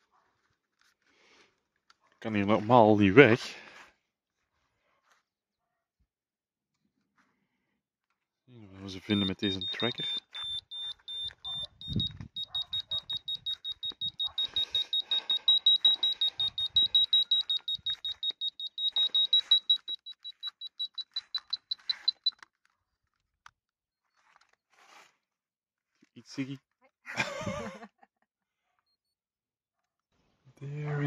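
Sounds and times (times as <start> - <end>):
high quick beeps: 8.9 - 22.4.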